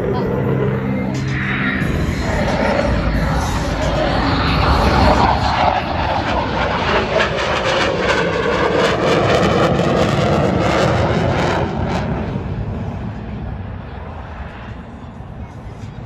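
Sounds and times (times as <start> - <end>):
jet engines roaring overhead: 0.0 - 16.0.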